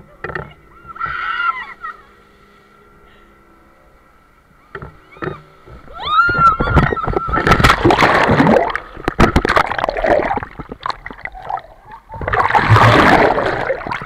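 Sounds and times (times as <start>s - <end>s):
water churning and splashing: 6.8s - 14.0s.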